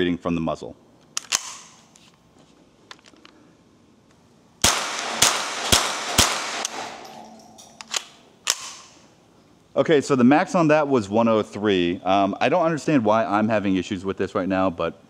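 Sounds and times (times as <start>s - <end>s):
rifle shots with echo: 4.6s - 9.0s.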